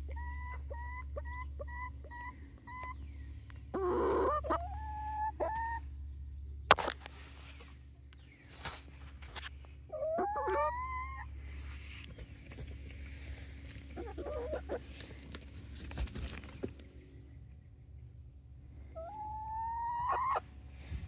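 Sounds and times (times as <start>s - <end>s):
hen clucking: 0.0s - 5.9s, 9.9s - 15.6s, 18.9s - 21.0s
hens calling: 0.0s - 5.9s, 9.9s - 16.7s, 18.9s - 21.0s
wings fluttering: 12.0s - 16.8s.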